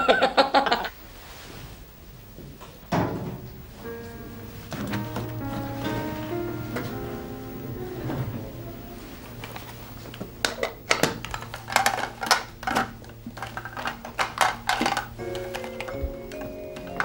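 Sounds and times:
low steady hum: 0.9 - 17.0
hard objects clattering: 9.0 - 17.0.

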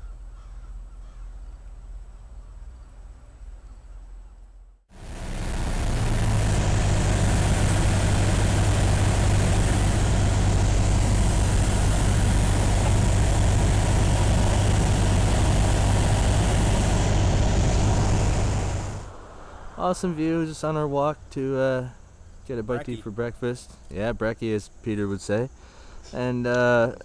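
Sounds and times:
propeller plane engine in flight: 4.9 - 19.5
air rushing past: 4.9 - 20.5.

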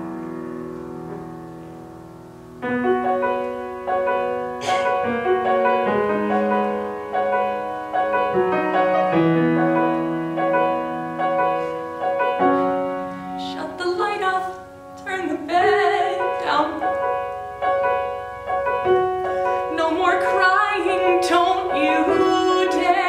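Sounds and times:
solo piano: 0.0 - 23.0.

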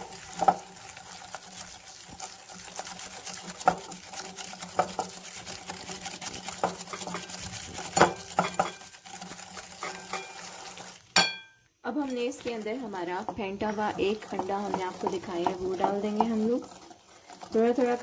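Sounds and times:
whisk scraping in glass bowl: 0.0 - 18.0
whisk wires clinking on glass: 8.0 - 8.8, 9.8 - 10.4, 11.2 - 11.6.

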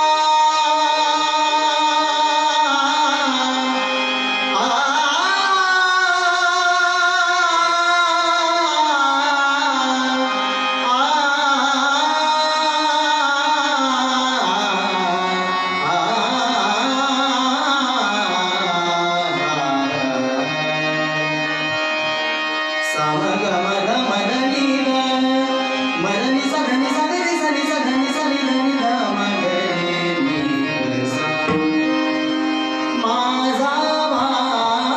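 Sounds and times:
man singing devotional song: 0.0 - 34.9
tabla playing: 10.8 - 34.9.

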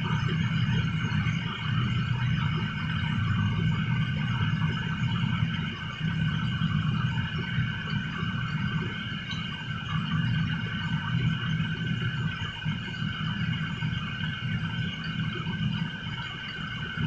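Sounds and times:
ventilation fans droning: 0.0 - 17.0.

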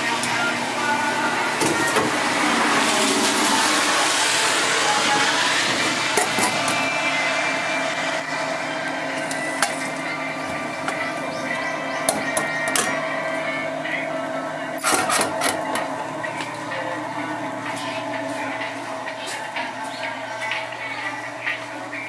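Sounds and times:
machine hum with tones: 0.0 - 22.0.

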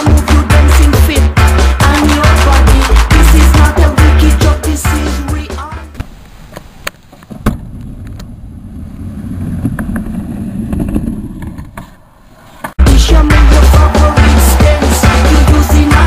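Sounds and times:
skateboard wheels rolling on concrete: 6.0 - 12.8
skateboard clacks: 9.4 - 12.0.

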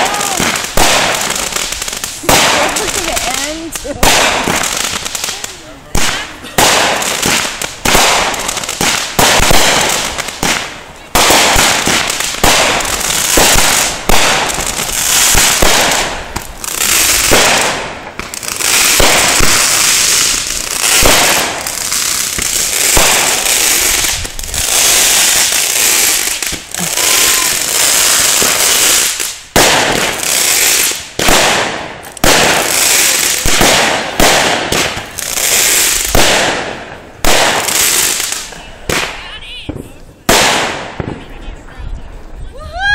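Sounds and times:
fireworks bangs and crackling: 0.0 - 42.9.

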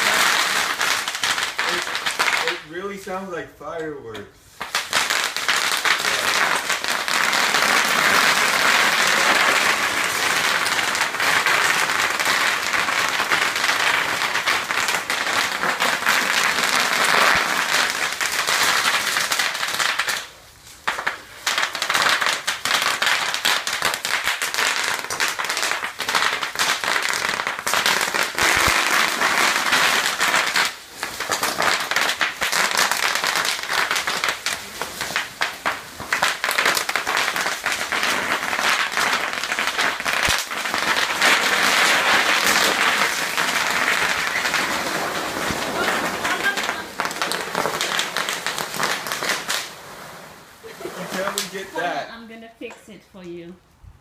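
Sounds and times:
bubble wrap popping: 0.0 - 2.7, 4.6 - 52.1.

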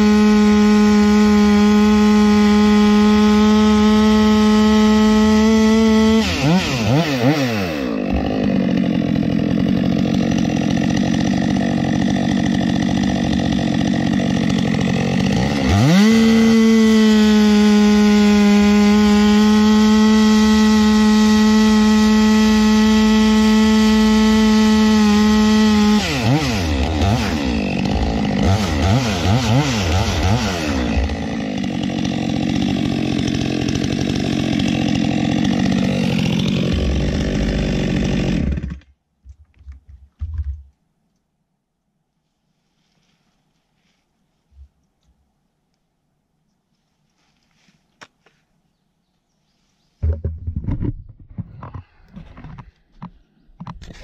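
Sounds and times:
chainsaw cutting wood: 0.0 - 39.0, 50.0 - 54.0.

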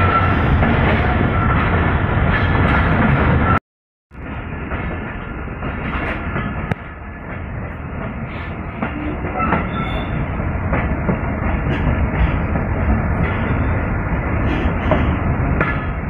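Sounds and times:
train wheels clattering on rail: 0.0 - 3.6, 4.2 - 16.0.

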